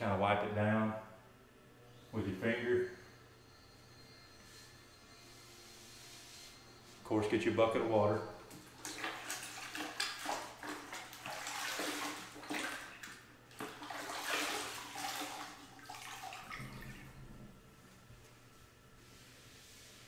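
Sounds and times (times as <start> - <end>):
water splashing in a bucket: 8.5 - 17.2.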